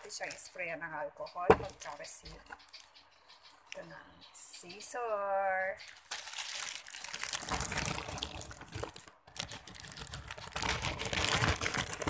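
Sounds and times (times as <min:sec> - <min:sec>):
plastic bag crinkling: 0:05.8 - 0:12.0
scissors cutting plastic: 0:06.5 - 0:12.0.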